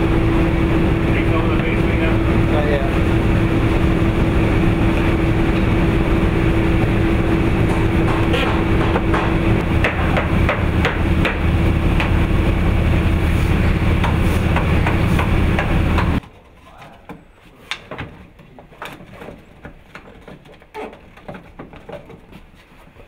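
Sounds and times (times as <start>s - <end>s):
diesel engine drone: 0.0s - 16.2s
line-shaft pulleys running: 0.0s - 16.2s
wooden knocks and clacks: 7.6s - 12.2s, 14.0s - 23.0s.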